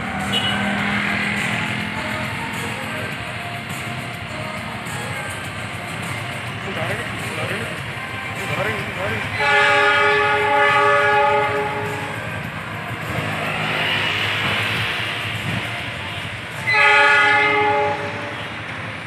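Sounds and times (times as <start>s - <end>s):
train rumbling: 0.0s - 19.0s
locomotive horn blasts: 0.2s - 1.0s, 9.3s - 12.4s, 16.6s - 18.6s.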